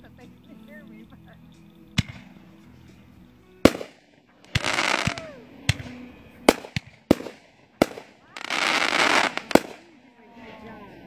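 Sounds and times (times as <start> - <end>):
firework bangs: 1.9 - 3.0, 3.6 - 10.0
firework hissing rush: 2.0 - 10.0.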